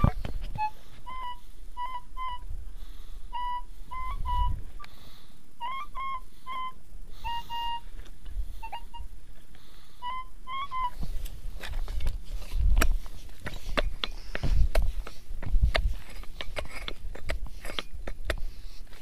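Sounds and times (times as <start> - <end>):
metal detector beeping: 0.0 - 2.4.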